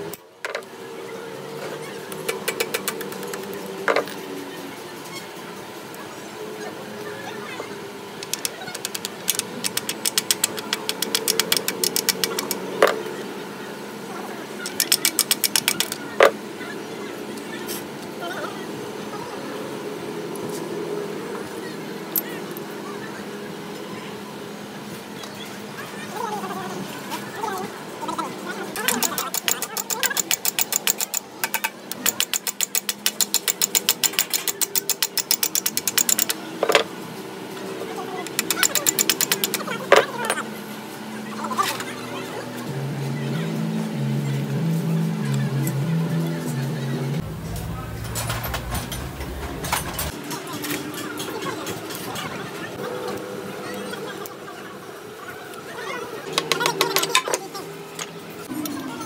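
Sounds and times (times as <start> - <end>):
metal tool tapping on metal: 28.9 - 36.8, 38.3 - 39.6.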